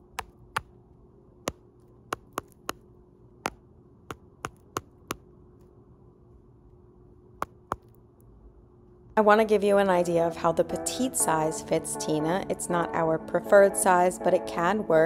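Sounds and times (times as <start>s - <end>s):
hen pecking on phone: 1.4s - 2.8s, 4.1s - 5.2s.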